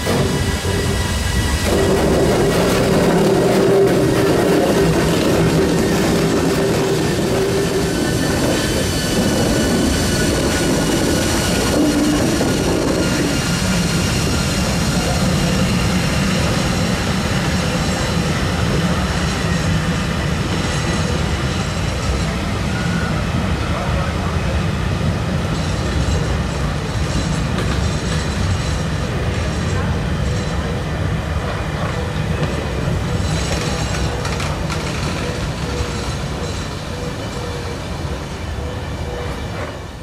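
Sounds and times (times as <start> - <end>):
wheels squealing: 0.0 - 23.2
locomotive hum: 0.0 - 40.0
train running gear rumble: 0.0 - 40.0.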